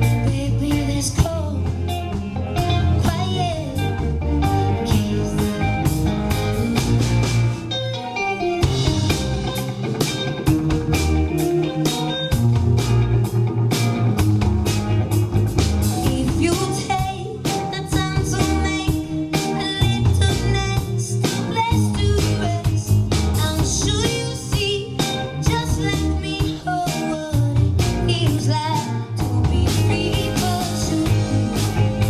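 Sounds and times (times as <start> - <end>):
woman singing lead vocal: 0.0 - 5.9, 16.0 - 31.8
live rock band playing: 0.0 - 32.0.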